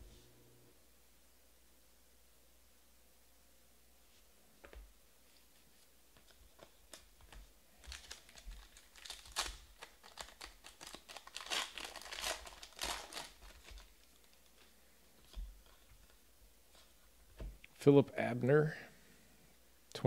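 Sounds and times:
foil wrapper crinkling: 0:06.3 - 0:16.2.

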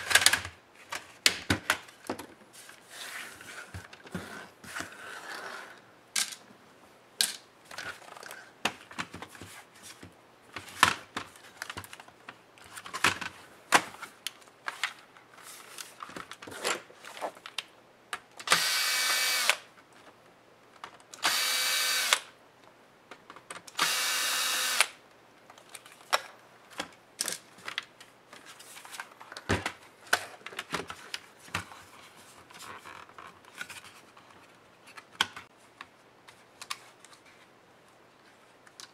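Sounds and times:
electric screwdriver whirring: 0:18.5 - 0:19.6, 0:21.2 - 0:22.3, 0:23.8 - 0:25.0
clicks and knocks of handling: 0:32.5 - 0:37.4.

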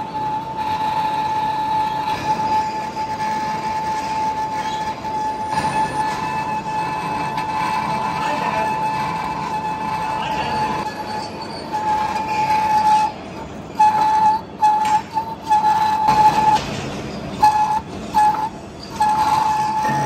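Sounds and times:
cutting tool squealing: 0:00.0 - 0:20.0
lathe running: 0:00.0 - 0:20.0.

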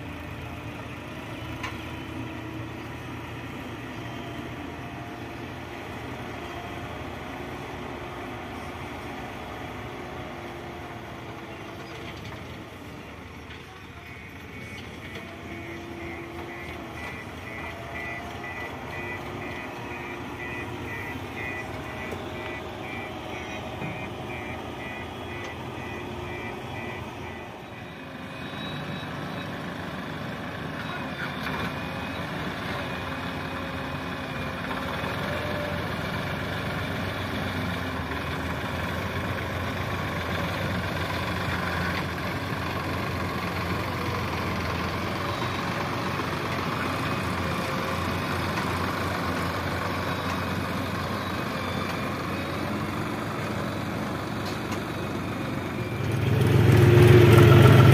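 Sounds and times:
diesel engine running: 0:00.0 - 0:57.9
tractor diesel engines: 0:00.0 - 0:57.9
reversing alarm beeping: 0:14.0 - 0:29.6, 0:49.3 - 0:53.8.

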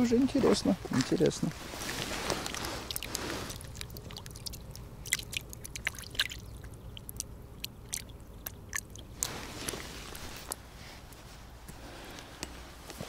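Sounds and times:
hands splashing in water: 0:01.7 - 0:10.6.

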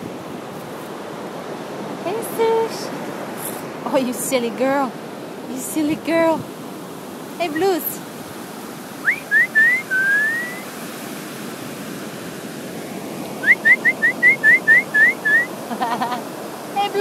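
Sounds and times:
surf hiss: 0:00.0 - 0:17.0
person whistling rising notes: 0:09.0 - 0:10.7, 0:13.4 - 0:15.5.

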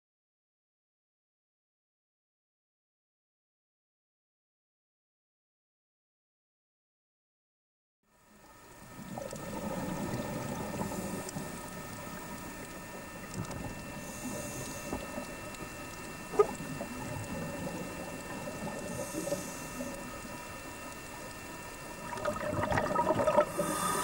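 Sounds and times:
faint steady hum: 0:08.1 - 0:24.0
underwater regulator bubbling: 0:13.2 - 0:20.1, 0:22.0 - 0:24.0.

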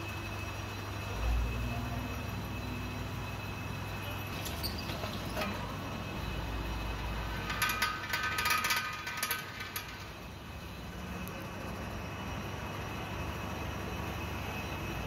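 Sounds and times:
drill bit squealing in metal: 0:04.3 - 0:06.3.

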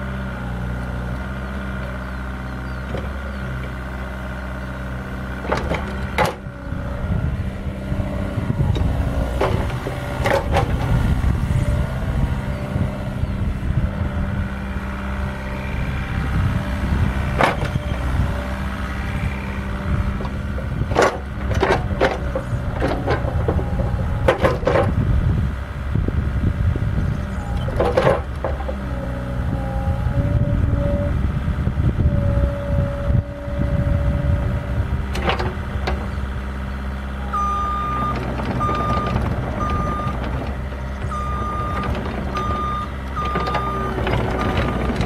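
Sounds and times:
diesel excavator engine under load: 0:00.0 - 0:45.0
hydraulic whine: 0:05.3 - 0:45.0
travel alarm beeping: 0:37.3 - 0:40.2, 0:41.0 - 0:44.0.

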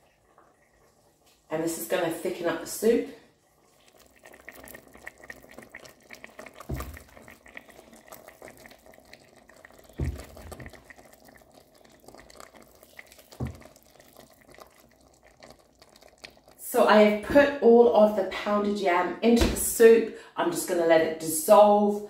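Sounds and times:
soup simmering and bubbling: 0:00.0 - 0:17.9
soft low plops: 0:03.3 - 0:16.6.

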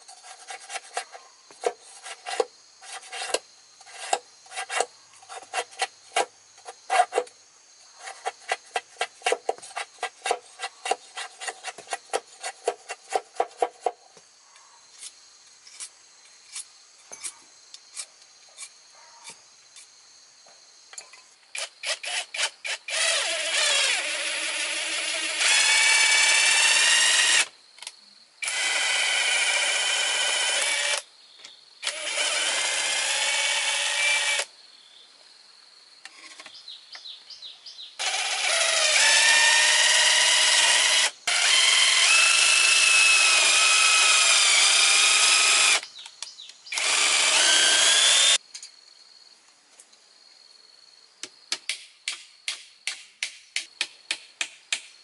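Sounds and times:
machete scraping bamboo strips: 0:00.0 - 0:07.3, 0:08.0 - 0:14.0
cordless drill running: 0:21.8 - 0:27.5, 0:28.4 - 0:31.0, 0:31.8 - 0:34.5, 0:38.0 - 0:45.8, 0:46.7 - 0:48.4.

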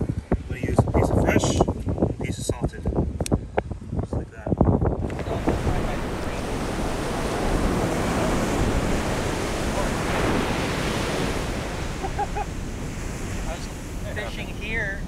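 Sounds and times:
wind buffeting microphone: 0:00.0 - 0:15.0
surf breaking on beach: 0:05.0 - 0:15.0.

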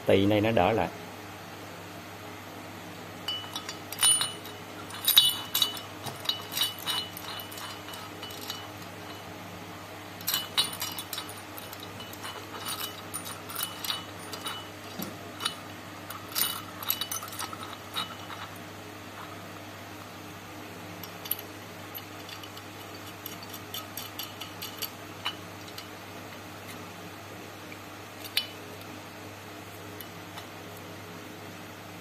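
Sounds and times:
metallic clinks and taps: 0:03.3 - 0:09.3, 0:10.2 - 0:18.6, 0:21.0 - 0:25.9.

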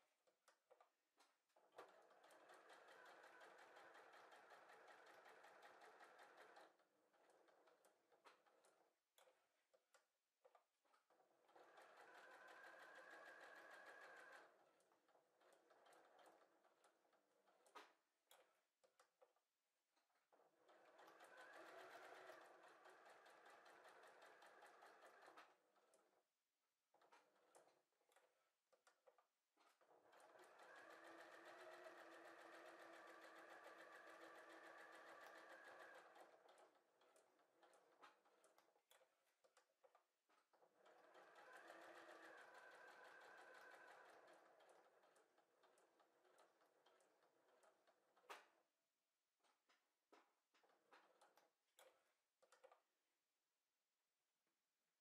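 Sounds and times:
sewing machine stitching: 0:01.6 - 0:09.4, 0:10.9 - 0:19.0, 0:20.2 - 0:26.2, 0:26.9 - 0:48.6.

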